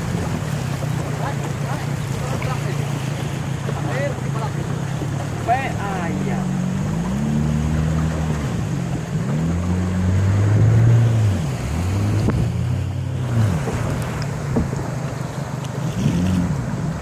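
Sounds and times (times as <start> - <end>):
outboard engine running: 0.0 - 17.0
river water rushing: 0.0 - 17.0
wind: 0.0 - 17.0.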